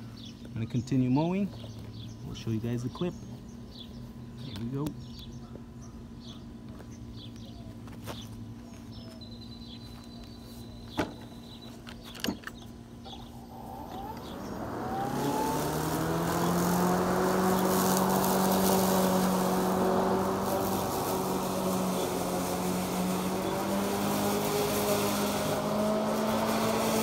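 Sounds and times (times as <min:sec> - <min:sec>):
lawn mower motor whining: 0:10.9 - 0:27.0.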